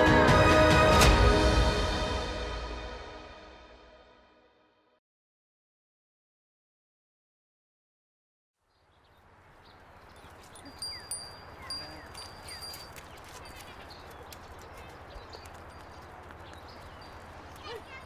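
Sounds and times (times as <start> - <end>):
small bird chirps: 8.7 - 18.0.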